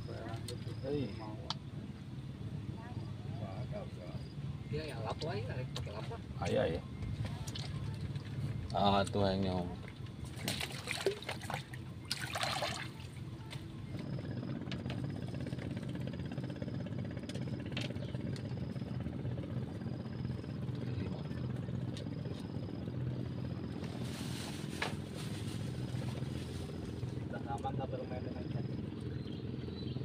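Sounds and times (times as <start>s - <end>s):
engine running: 0.0s - 30.0s.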